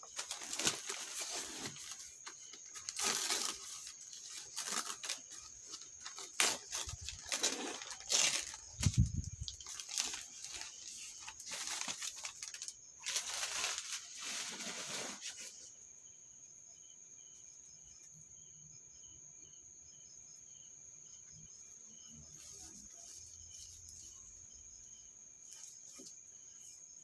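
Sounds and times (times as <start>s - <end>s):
plant wrapping rustling: 0.0s - 15.7s.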